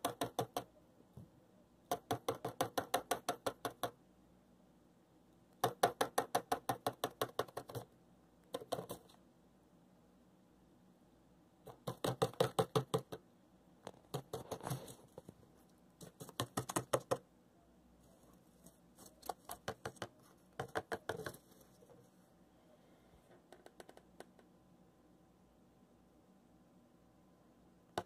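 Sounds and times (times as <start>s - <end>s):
bird beak drumming on cardboard: 0.0s - 0.7s, 1.9s - 4.0s, 5.6s - 7.9s, 8.5s - 9.1s, 11.7s - 13.2s, 13.9s - 14.9s, 16.0s - 17.2s, 19.2s - 21.5s.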